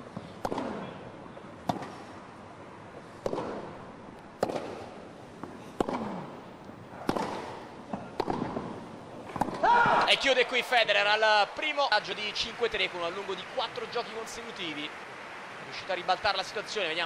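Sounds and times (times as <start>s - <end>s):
crowd and court noise: 0.0s - 17.0s
tennis ball struck by racquet: 0.4s - 0.9s, 1.6s - 2.2s, 3.2s - 3.8s, 4.4s - 6.4s, 7.0s - 10.2s.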